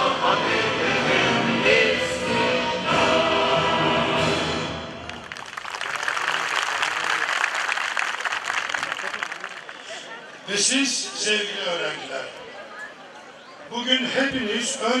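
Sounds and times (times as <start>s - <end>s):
choir with orchestra: 0.0s - 5.0s
crowd applauding: 5.0s - 10.3s.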